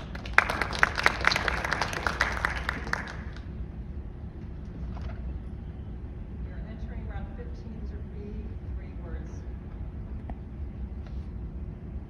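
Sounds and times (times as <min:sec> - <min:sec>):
small audience applauding: 0:00.0 - 0:03.5.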